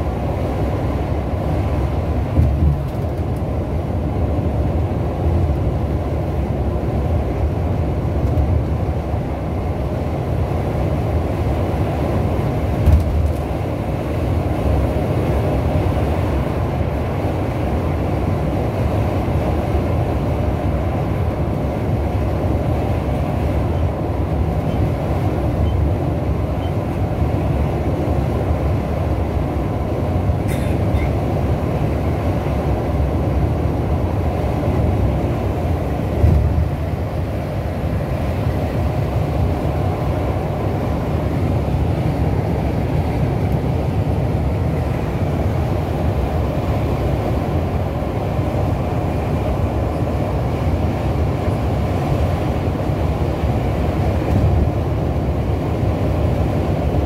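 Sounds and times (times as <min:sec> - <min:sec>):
coach engine and tyres rumbling: 0:00.0 - 0:57.0.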